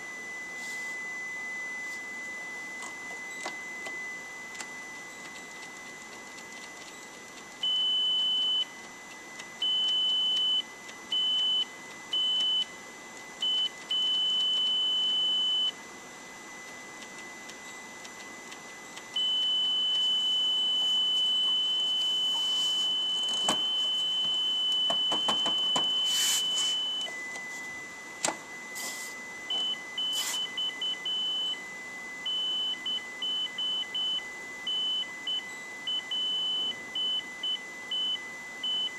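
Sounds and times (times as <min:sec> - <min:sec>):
high electronic beeps: 0:19.2 - 0:27.7.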